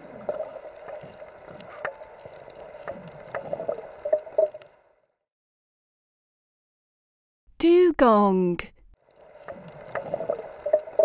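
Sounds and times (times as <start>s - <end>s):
underwater hum and water noise: 0.0s - 5.2s, 8.9s - 11.0s.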